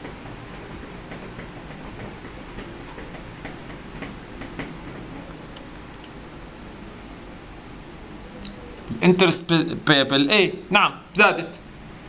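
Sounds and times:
low background hiss: 5.1 - 12.0
keyboard and mouse clicking: 5.5 - 6.2.

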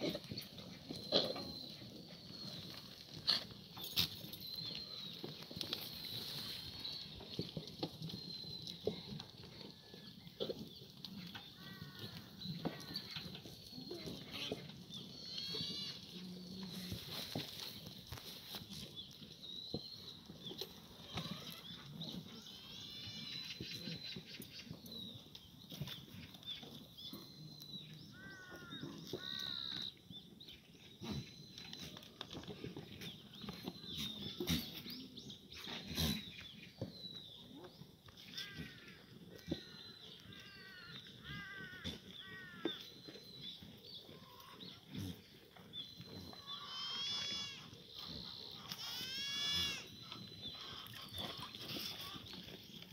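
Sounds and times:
goats bleating: 46.5 - 47.8, 48.6 - 49.9.

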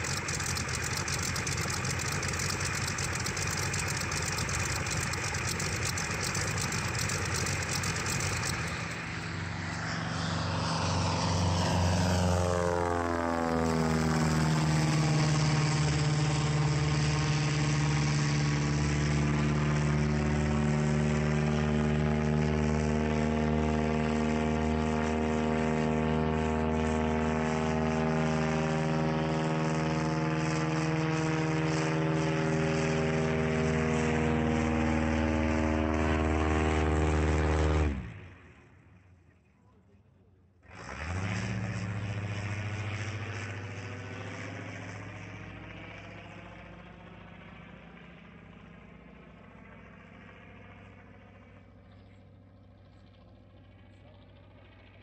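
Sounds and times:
radial engine running: 0.0 - 11.5
propeller plane flying overhead: 0.0 - 55.0.

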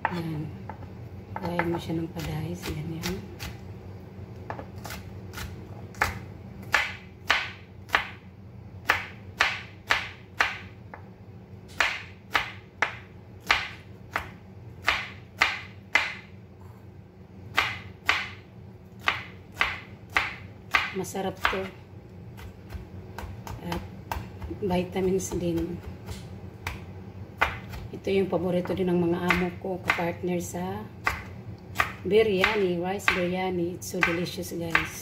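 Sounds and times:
knife chopping on plastic board: 8.8 - 10.6, 11.7 - 16.2, 22.4 - 27.9, 31.0 - 33.3, 34.0 - 35.0.

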